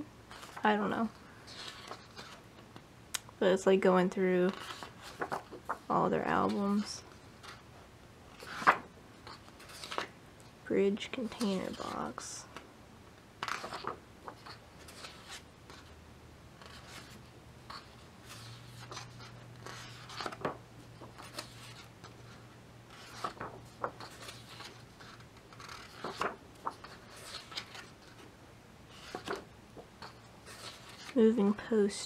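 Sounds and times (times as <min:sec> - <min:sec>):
book pages turning: 0:00.3 - 0:00.6, 0:01.4 - 0:02.8, 0:04.5 - 0:07.6, 0:08.3 - 0:10.1, 0:11.2 - 0:12.6, 0:13.4 - 0:15.9, 0:16.6 - 0:28.3, 0:28.9 - 0:31.2.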